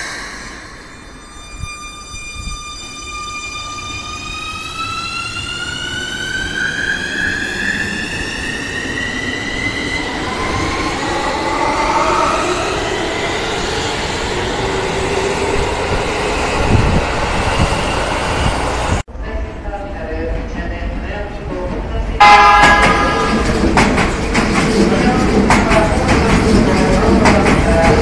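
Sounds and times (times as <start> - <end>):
train wheel and running noise: 19.6 - 28.0.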